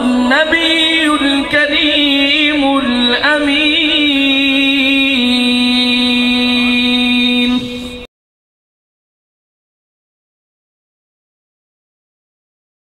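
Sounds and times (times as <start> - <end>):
man chanting recitation: 0.0 - 8.1.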